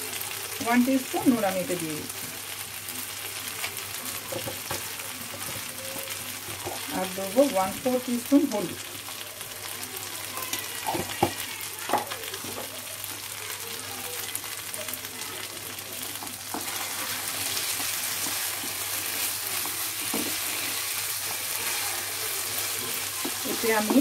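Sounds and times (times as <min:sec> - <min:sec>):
potatoes sizzling in oil: 0:00.0 - 0:24.0
spatula scraping a wok: 0:16.4 - 0:24.0.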